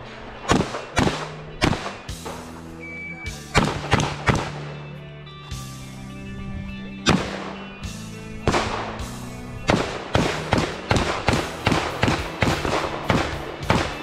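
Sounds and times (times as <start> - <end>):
background music: 0.0 - 14.0.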